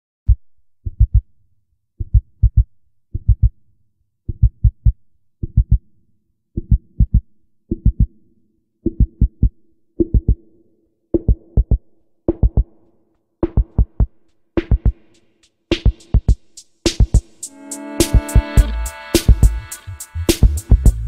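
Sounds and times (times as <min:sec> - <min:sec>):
low drum machine thumps: 0:00.3 - 0:01.3, 0:02.1 - 0:03.5, 0:18.0 - 0:19.7
steady synth note: 0:17.4 - 0:20.6.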